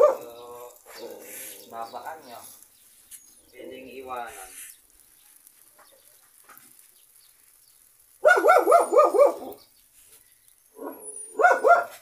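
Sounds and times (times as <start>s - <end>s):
dog barking: 0.0s - 0.4s, 8.2s - 9.6s, 10.8s - 12.0s.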